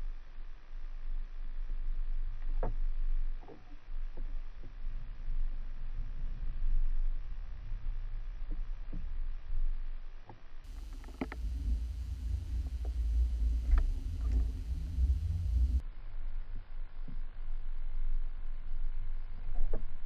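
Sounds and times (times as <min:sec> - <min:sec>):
low rumble of water: 0:00.0 - 0:20.0
faint clicks: 0:10.2 - 0:15.8.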